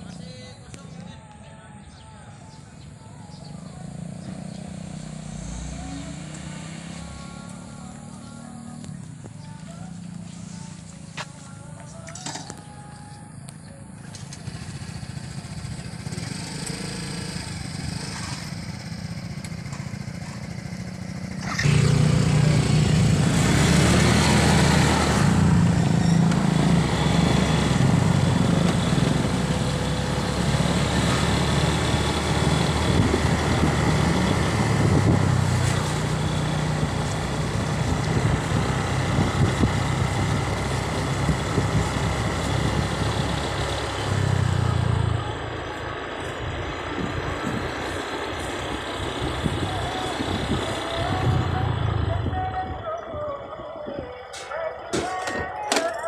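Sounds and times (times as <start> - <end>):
motorcycle engine: 3.2 - 11.2, 13.7 - 53.5
wind and road noise: 14.4 - 54.3.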